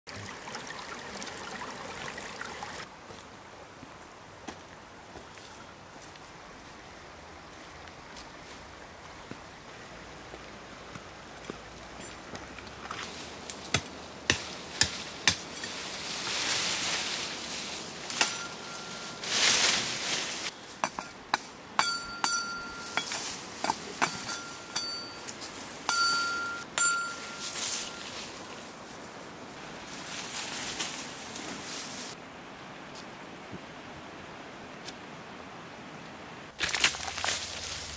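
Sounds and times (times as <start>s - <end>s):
leaves rustling: 0.2s - 35.4s, 36.5s - 37.9s
high ringing notes: 18.2s - 19.5s, 21.8s - 23.4s, 24.0s - 28.3s
wooden pole knocking on branches: 20.8s - 25.0s.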